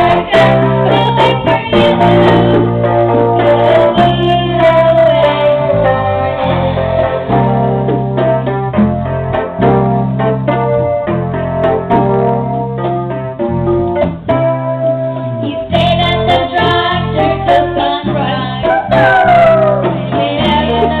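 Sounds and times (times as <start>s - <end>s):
electric keyboard chords: 0.0s - 21.0s
children singing: 16.0s - 21.0s.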